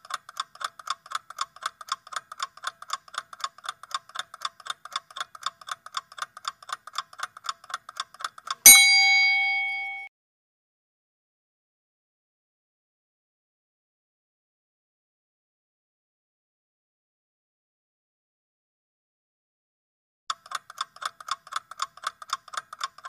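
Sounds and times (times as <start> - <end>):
rapid clock ticking: 0.0 - 8.6, 20.3 - 23.0
bell ding: 8.7 - 10.1.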